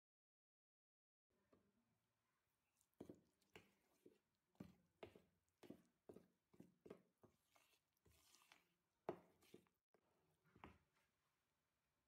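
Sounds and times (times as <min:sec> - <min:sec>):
spoon scraping plastic bowl: 0:03.0 - 0:09.8.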